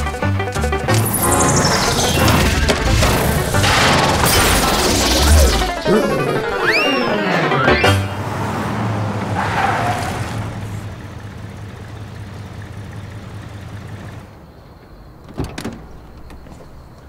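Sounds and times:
car engine hum: 7.9s - 15.0s.

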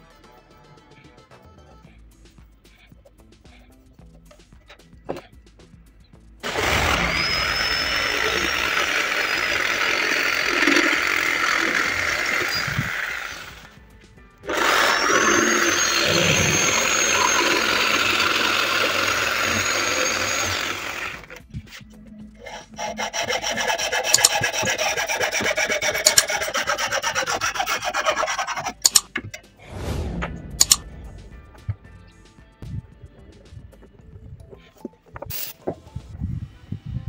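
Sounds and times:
hand saw cutting wood: 6.4s - 13.8s, 14.4s - 21.4s, 22.4s - 29.4s, 30.6s - 30.8s
jigsaw cutting wood: 6.4s - 13.8s, 14.4s - 21.4s, 22.4s - 29.0s.

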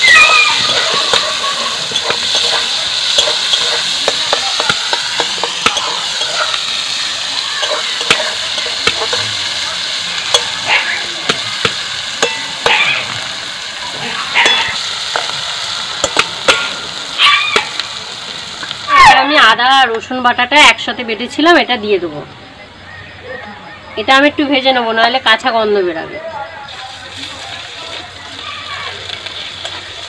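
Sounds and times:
metal spatula scraping wok: 0.0s - 17.0s
onions sizzling in hot oil: 0.0s - 22.0s, 26.6s - 30.0s.

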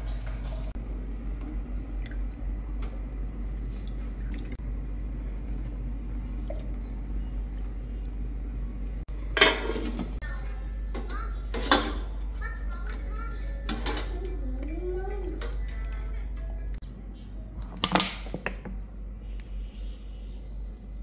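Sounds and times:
water sloshing in a pot: 0.0s - 10.3s, 10.9s - 13.0s, 13.6s - 16.6s
low hum: 0.0s - 17.8s.

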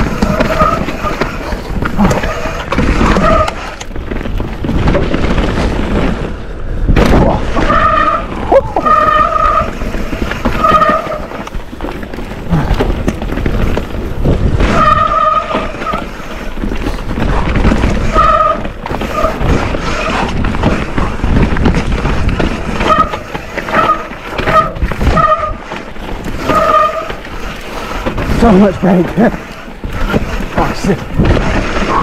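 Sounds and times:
bike disc brakes squealing: 0.0s - 3.8s, 7.6s - 11.4s, 14.6s - 16.1s, 26.4s - 27.2s
bike jolt: 0.0s - 32.0s
tyres and frame rattling on trail: 0.0s - 32.0s.

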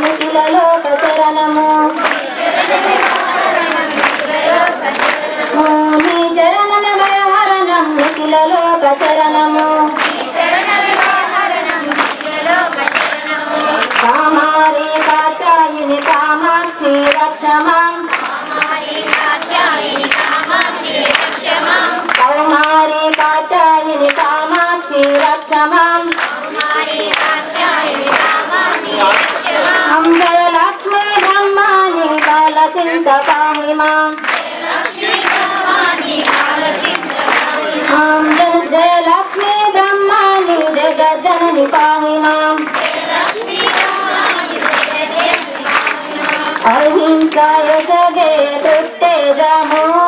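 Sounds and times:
rhythmic hand-clapping: 0.0s - 50.0s
women singing together: 0.0s - 50.0s.

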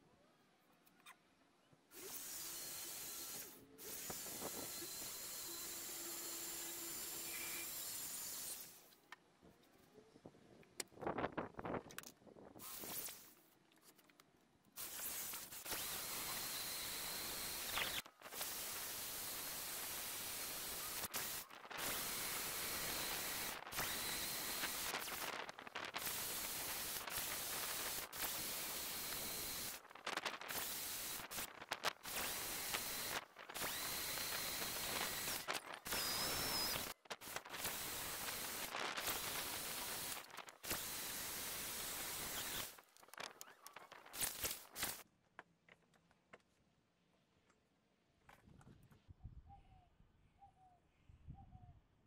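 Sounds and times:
electric drill motor whine: 1.9s - 8.8s, 14.8s - 42.8s
drill bit cutting wood: 2.0s - 8.8s, 14.8s - 42.8s.

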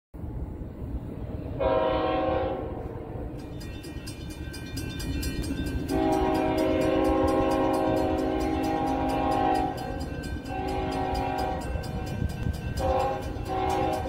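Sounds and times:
locomotive air horn blasts: 1.6s - 3.4s, 5.9s - 14.0s.

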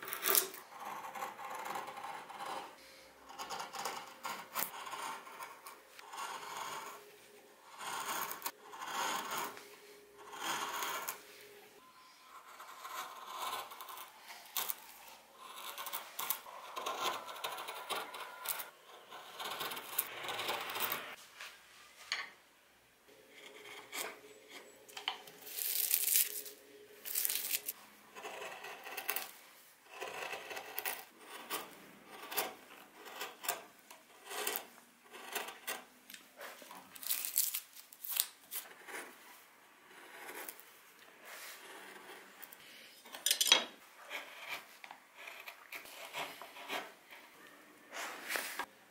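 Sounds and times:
gouge scraping wood: 7.7s - 9.6s, 12.3s - 21.0s, 28.1s - 29.3s, 29.9s - 35.8s, 44.0s - 47.3s.

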